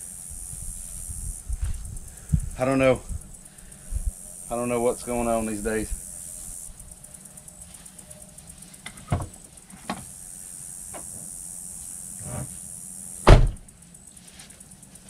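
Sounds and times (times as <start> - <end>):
steady high hiss: 0.0 - 15.0
truck door shutting thump: 13.2 - 13.7.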